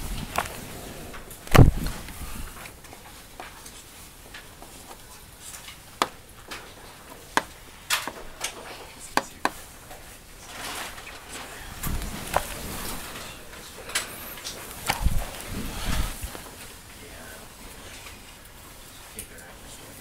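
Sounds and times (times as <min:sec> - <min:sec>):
heavy thump: 0:01.5 - 0:02.0.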